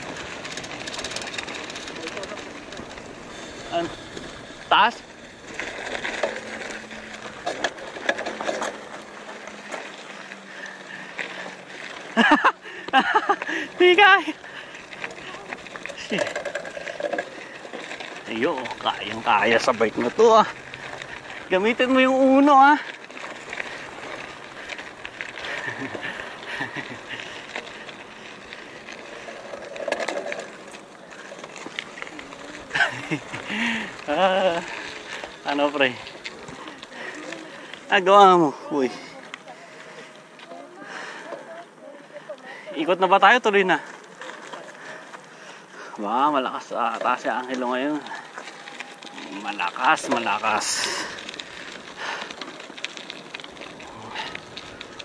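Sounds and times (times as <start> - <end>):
small clicks and ticks: 0.0 - 42.6, 43.3 - 55.0
tyres crunching on gravel: 0.0 - 55.0.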